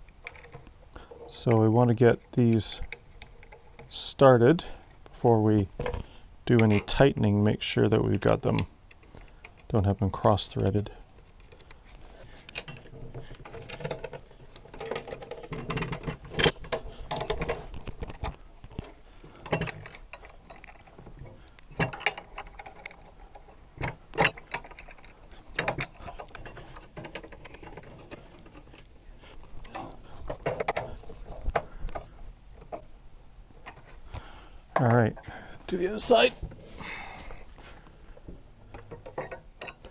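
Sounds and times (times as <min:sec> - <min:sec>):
metal bracket and bolts clinking: 0:06.5 - 0:07.0, 0:12.5 - 0:28.9, 0:38.8 - 0:39.9.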